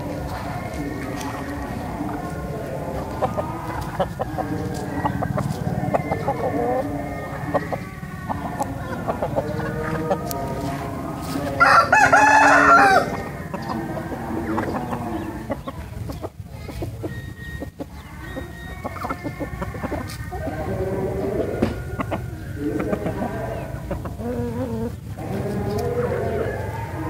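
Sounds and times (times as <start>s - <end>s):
chickens clucking: 0.0s - 27.0s
rooster crowing: 11.4s - 15.5s, 17.2s - 23.8s, 24.7s - 27.0s.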